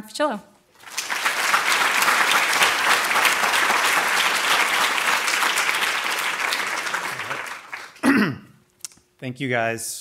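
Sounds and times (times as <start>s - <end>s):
audience applauding: 0.8s - 8.1s.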